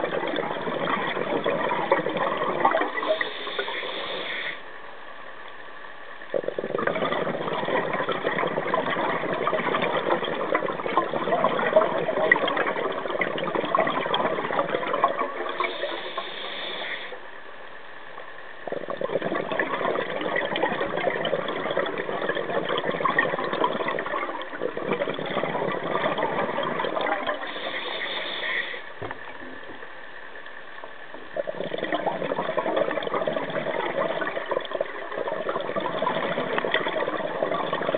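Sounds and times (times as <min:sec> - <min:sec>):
exhaled bubbles underwater: 0:00.0 - 0:04.7, 0:06.2 - 0:17.3, 0:18.5 - 0:37.9
regulator inhale hiss: 0:03.0 - 0:04.8, 0:15.6 - 0:17.3, 0:27.4 - 0:29.0.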